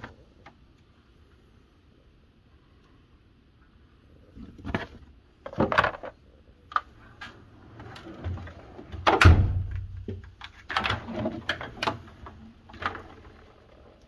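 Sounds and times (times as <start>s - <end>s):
tools clunking and rattling: 4.6s - 6.2s
metal drawers sliding: 7.1s - 9.7s, 10.7s - 13.4s.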